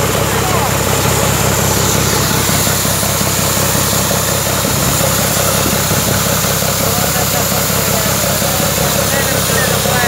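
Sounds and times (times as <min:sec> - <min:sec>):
engine and compressors rumbling: 0:00.0 - 0:10.0.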